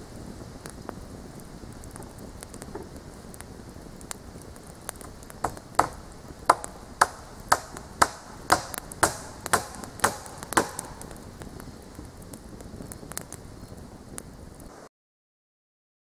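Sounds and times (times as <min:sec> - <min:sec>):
hammer driving nails into wood: 0:05.4 - 0:11.1.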